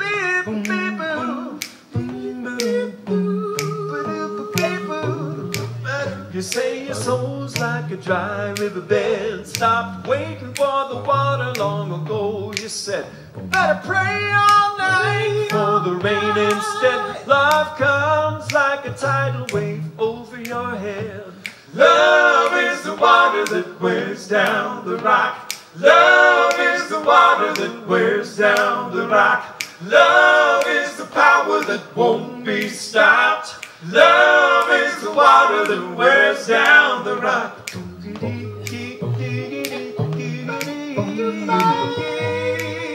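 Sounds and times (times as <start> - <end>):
men singing a cappella harmony: 0.0 - 42.9
finger snaps: 0.4 - 37.0, 37.6 - 42.9
low bass voice: 4.7 - 6.4, 9.2 - 16.2, 17.2 - 21.2, 37.8 - 42.5.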